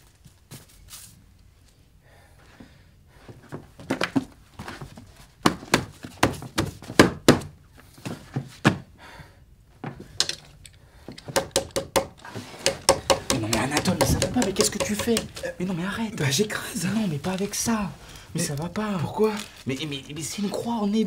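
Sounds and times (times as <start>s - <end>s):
scuffle thuds and knocks: 3.3s - 8.9s.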